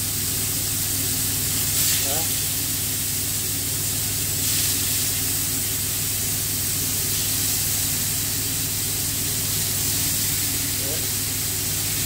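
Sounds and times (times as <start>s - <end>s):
extractor fan humming: 0.0s - 12.0s
meat sizzling in a frying pan: 0.0s - 12.0s.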